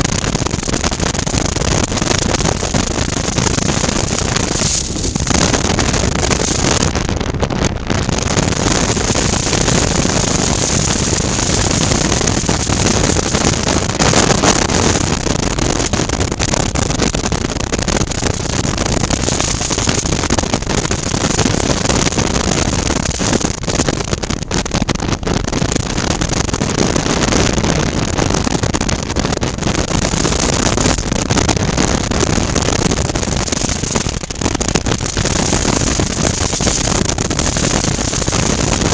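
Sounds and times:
motorcycle engine drone: 0.0 - 16.6
wind noise on helmet: 0.0 - 38.9.

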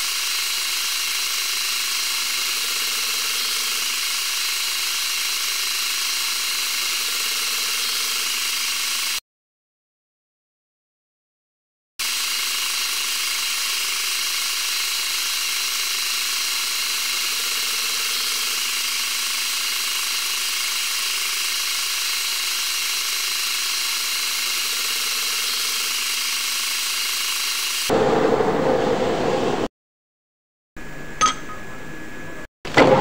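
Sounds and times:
metal lathe whirring: 0.0 - 9.2, 12.0 - 27.9.

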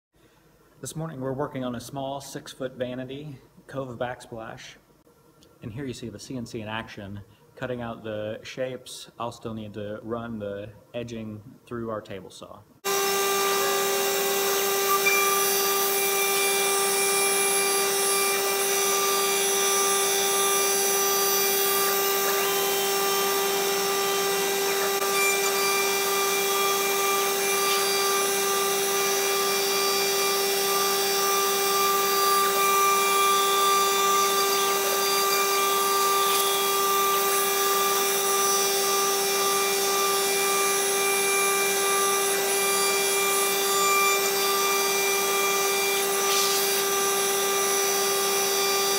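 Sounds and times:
router spindle whine: 12.8 - 48.9.

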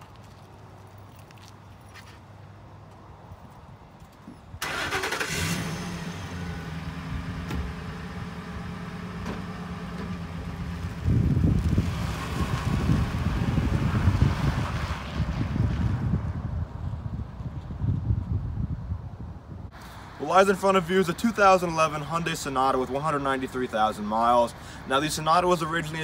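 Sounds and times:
truck engine starting: 4.6 - 14.2
truck engine rumbling driving off: 4.6 - 14.7.

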